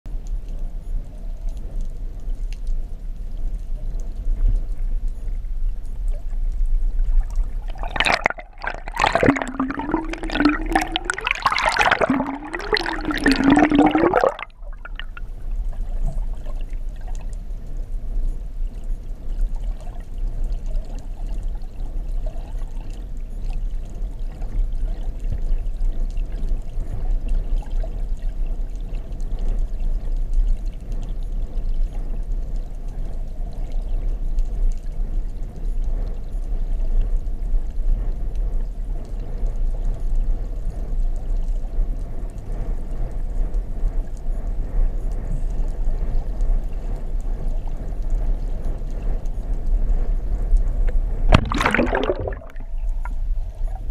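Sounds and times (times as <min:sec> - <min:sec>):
underwater hiss and rumble: 0:00.1 - 0:53.9.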